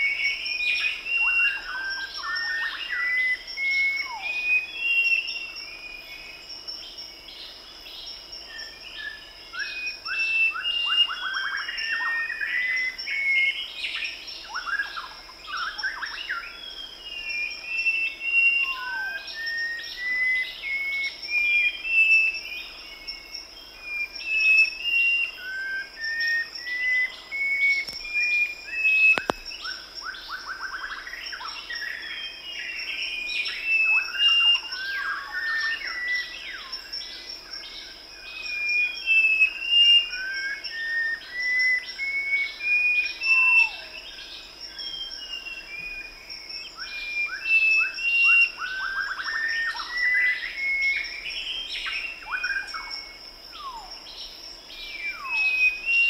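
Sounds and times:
high insect drone: 0:00.0 - 0:56.0
birds chirping and calling: 0:08.6 - 0:56.0
sharp click: 0:29.1 - 0:29.5.

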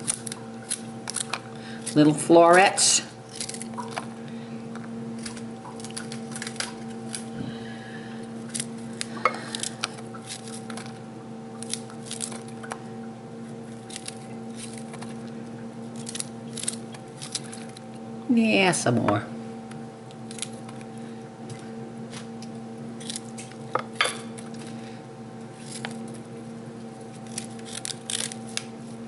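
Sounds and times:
broccoli snapping by hand: 0:00.0 - 0:02.0, 0:03.3 - 0:04.1, 0:11.6 - 0:12.8, 0:27.2 - 0:28.7
steady electrical hum: 0:00.0 - 0:29.0.

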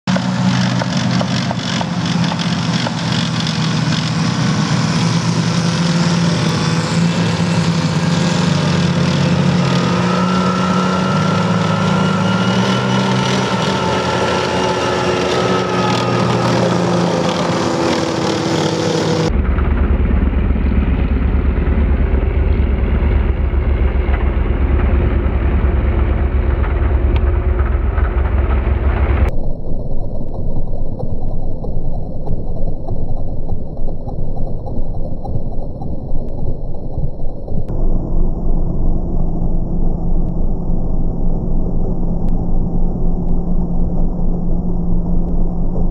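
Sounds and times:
tracked vehicle engine driving past: 0:00.1 - 0:29.3
deep dull rumble: 0:00.1 - 0:45.9.

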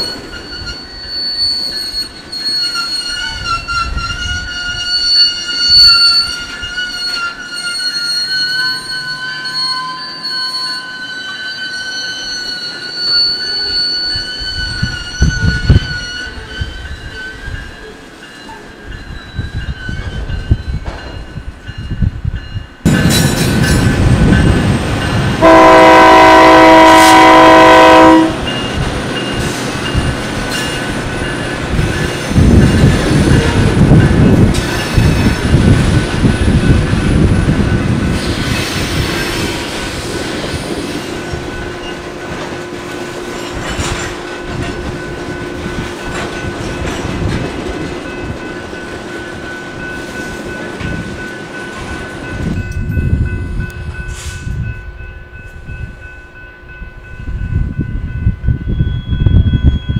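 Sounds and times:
train wheels squealing: 0:00.0 - 0:42.6, 0:43.2 - 0:59.9
train rumble and clicking wheels: 0:00.0 - 0:59.9
locomotive horn blast: 0:25.4 - 0:28.5.

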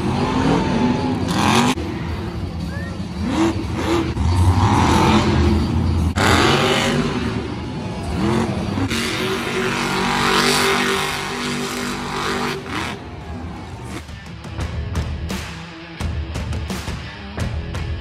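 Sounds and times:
truck engine revving hard: 0:00.0 - 0:14.1.

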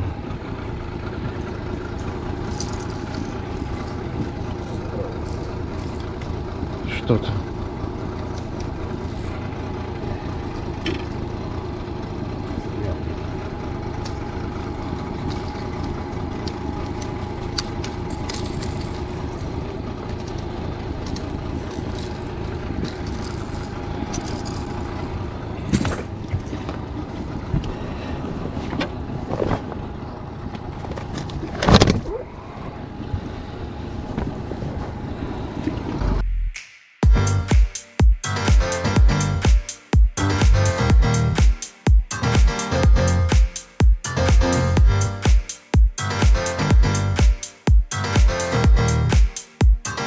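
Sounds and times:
outboard motor running: 0:00.0 - 0:36.2.

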